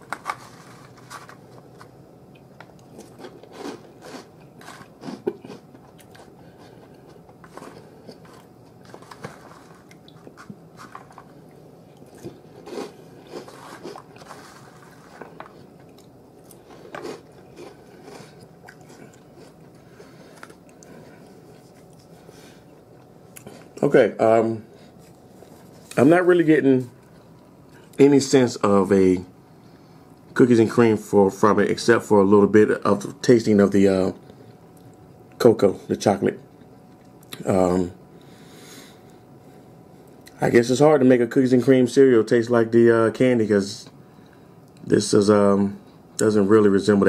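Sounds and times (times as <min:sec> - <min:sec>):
person chewing cereal: 0:00.0 - 0:23.8, 0:24.7 - 0:26.1.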